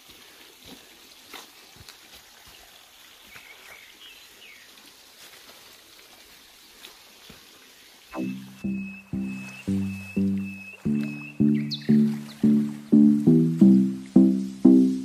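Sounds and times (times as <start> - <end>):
steady forest hiss: 0.0 - 8.1
bird chirps: 8.2 - 15.0.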